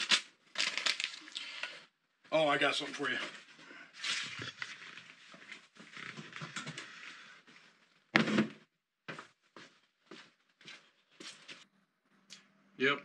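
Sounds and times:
cardboard packaging rustling: 0:00.0 - 0:01.3
footsteps on concrete: 0:09.1 - 0:11.6.

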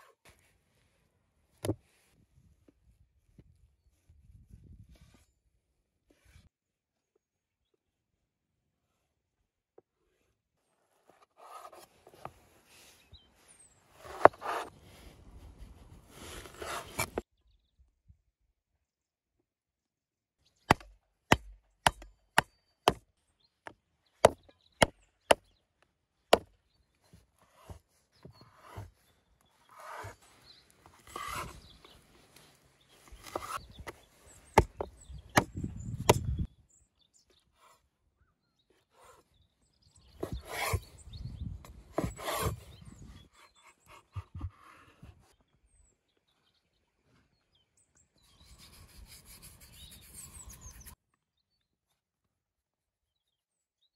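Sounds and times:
scraping on cutting board: 0:14.0 - 0:14.7, 0:16.1 - 0:17.2, 0:29.7 - 0:30.2, 0:31.0 - 0:31.6, 0:33.1 - 0:33.6, 0:40.2 - 0:40.8, 0:42.0 - 0:42.7
cleaver chopping on wooden board: 0:20.7 - 0:23.0.

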